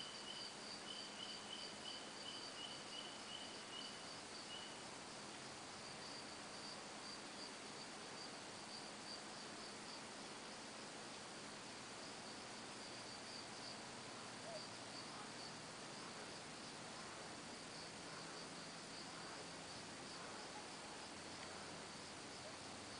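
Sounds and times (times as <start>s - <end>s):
high-pitched insect chirping: 0.0s - 4.9s
faint hiss: 0.0s - 22.9s
lower insect chirping: 0.0s - 22.9s.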